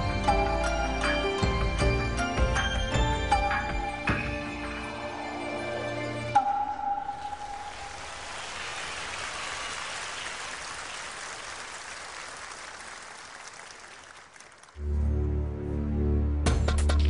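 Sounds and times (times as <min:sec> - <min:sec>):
audience applauding: 0:07.6 - 0:14.8.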